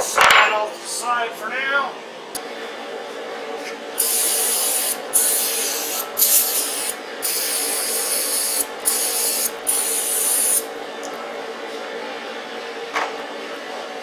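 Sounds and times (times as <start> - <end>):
aerosol spray can hissing: 4.0 - 10.6.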